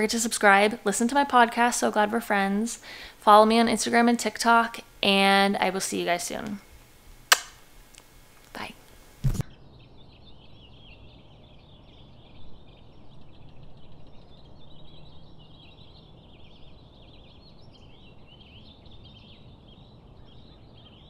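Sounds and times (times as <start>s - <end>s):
small birds twittering: 9.4s - 21.0s.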